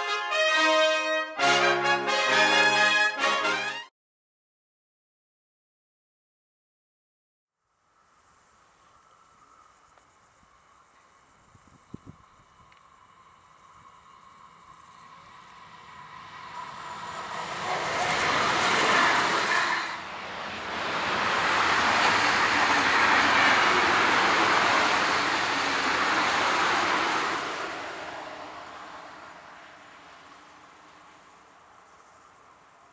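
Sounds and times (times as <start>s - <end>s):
train wheels rolling on rail: 8.8s - 32.9s.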